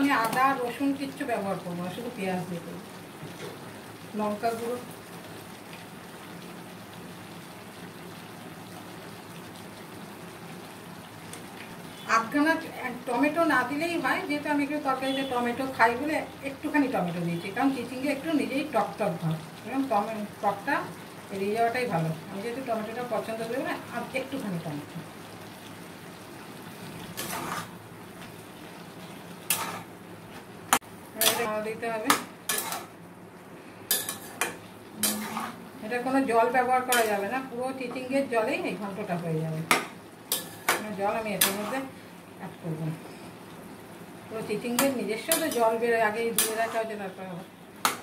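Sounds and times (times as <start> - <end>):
food cooking with faint hiss: 0.0 - 48.0
vegetables sizzling in a pan: 0.0 - 48.0
spatula scraping pan: 27.0 - 27.8, 29.4 - 33.0, 33.9 - 35.7, 39.7 - 42.0, 44.8 - 47.0.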